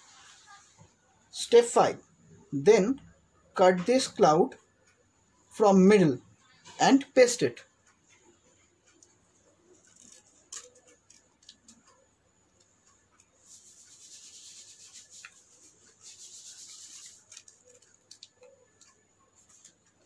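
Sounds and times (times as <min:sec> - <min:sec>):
scissors cutting paper: 0:09.8 - 0:11.9, 0:13.2 - 0:20.0
scissors clicking: 0:09.9 - 0:11.8.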